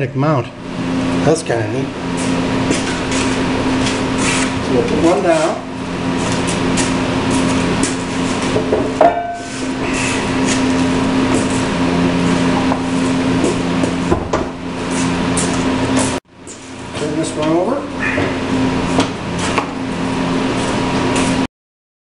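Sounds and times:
low steady hum: 0:00.0 - 0:15.9.

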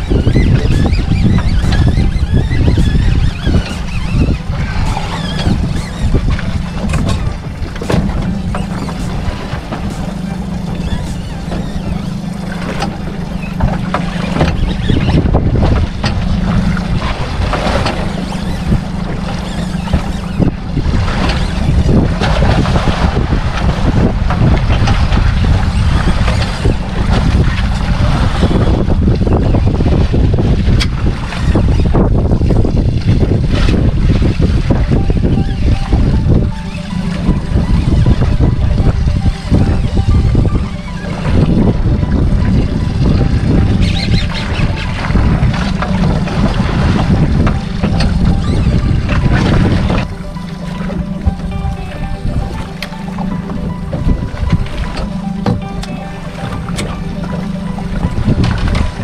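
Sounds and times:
water slapping boat hull: 0:00.0 - 0:59.0
wind buffeting microphone: 0:00.0 - 0:59.0.

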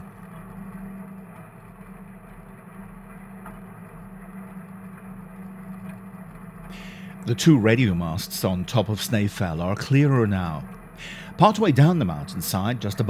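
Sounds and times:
electric tram motor hum: 0:00.0 - 0:13.0.

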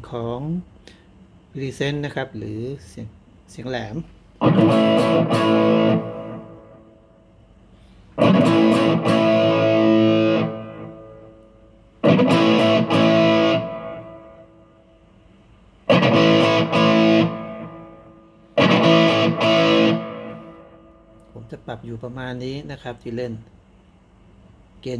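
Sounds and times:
distorted electric guitar chords: 0:04.4 - 0:07.4, 0:08.2 - 0:21.4.

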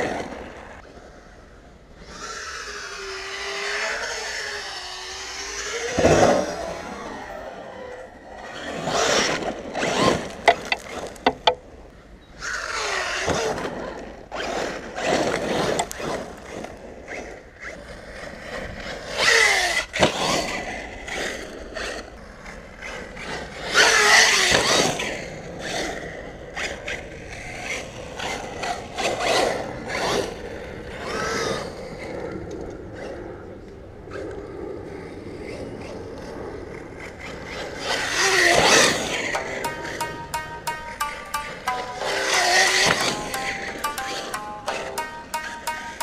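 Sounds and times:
sharp knocks: 0:10.5 - 0:11.6, 0:39.4 - 0:46.0.

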